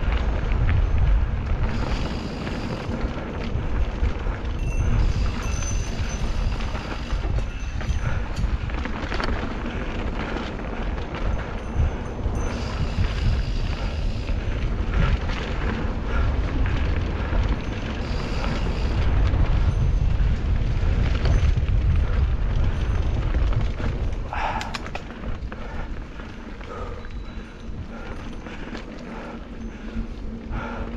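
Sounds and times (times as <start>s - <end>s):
bike tyres on dirt: 0.0s - 30.9s
wind buffeting microphone: 0.0s - 30.9s
rattle of clicks: 23.4s - 25.6s.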